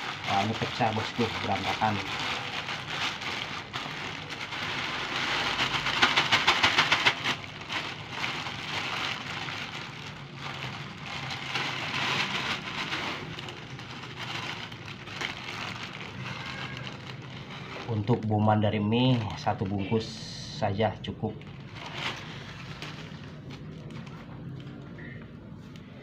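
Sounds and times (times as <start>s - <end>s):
noodle bits rattling against plastic: 0.0s - 18.2s
plastic bags crinkling: 0.0s - 25.2s.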